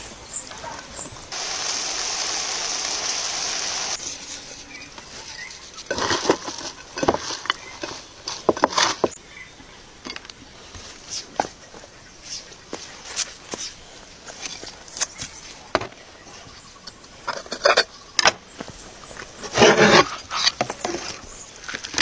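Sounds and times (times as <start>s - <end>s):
vegetables sizzling on a grill: 1.3s - 8.0s
salad crunching and rustling: 4.0s - 9.2s.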